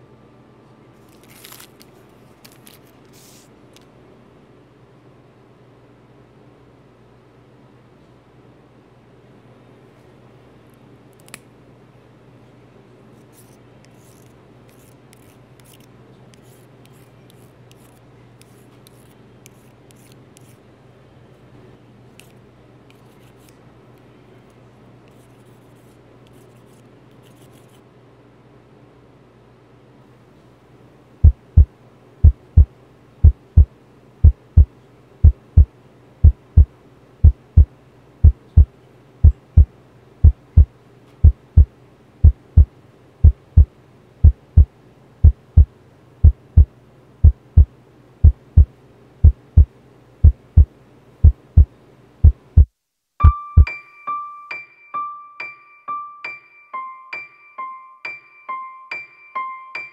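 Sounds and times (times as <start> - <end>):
heartbeat thumps: 31.2 - 53.7
electric piano melody: 53.2 - 59.9.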